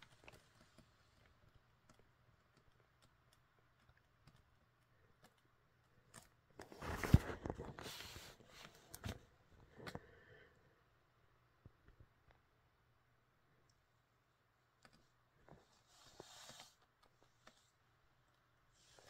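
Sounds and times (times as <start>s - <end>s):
handling rustling: 0.0s - 10.0s.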